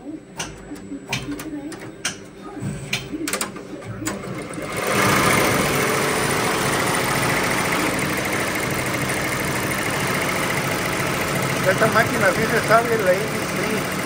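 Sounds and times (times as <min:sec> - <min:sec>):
machine clicks: 0:00.4 - 0:04.4
embroidery machine stitching: 0:02.9 - 0:14.0.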